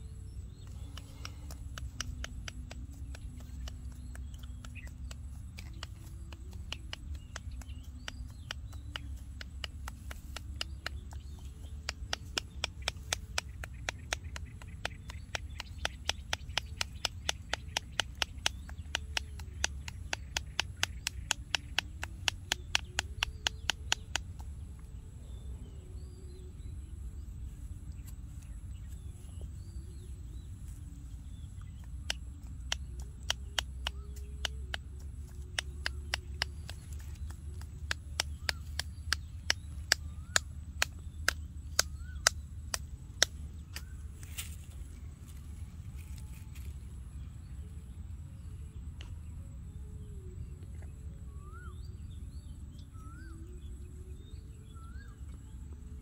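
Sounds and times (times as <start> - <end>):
sharp clicks: 0.5 - 24.9, 31.7 - 44.7.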